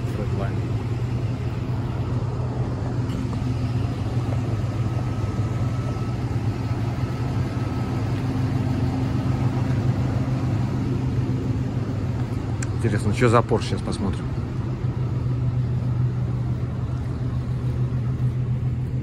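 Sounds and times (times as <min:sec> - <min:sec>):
faint high whine: 0:00.0 - 0:19.0
vehicle engine idling: 0:00.0 - 0:19.0.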